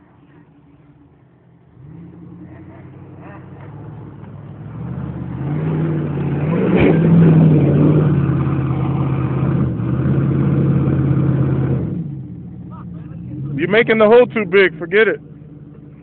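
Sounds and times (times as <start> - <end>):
engine revving high: 1.7 - 12.2.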